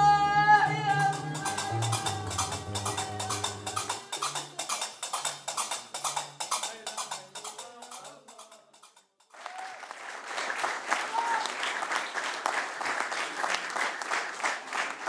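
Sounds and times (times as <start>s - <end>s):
low plucked strings: 0.0s - 4.8s
hand percussion clicks: 0.6s - 9.3s
applause: 9.3s - 15.0s.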